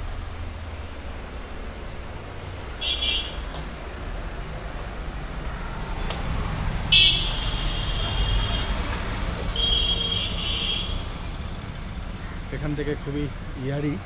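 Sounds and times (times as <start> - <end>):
passing motor vehicles rumbling: 0.0 - 14.0
vehicle horn blasts: 2.8 - 3.4, 6.9 - 8.8, 9.6 - 11.0.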